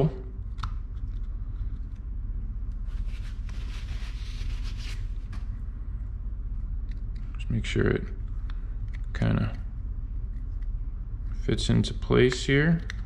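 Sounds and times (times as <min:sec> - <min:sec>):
steady low hum: 0:00.0 - 0:13.0
hands rustling and scraping: 0:02.7 - 0:05.6.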